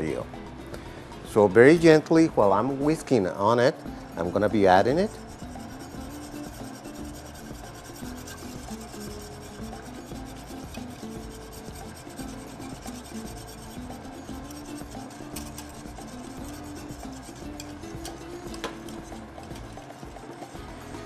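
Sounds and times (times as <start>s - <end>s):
whisk scraping a metal saucepan: 4.2s - 20.7s.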